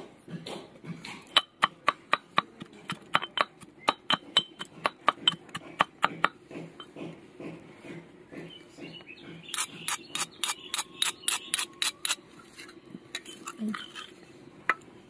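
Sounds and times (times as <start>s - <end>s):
pestle pounding in iron mortar: 0.2s - 12.2s.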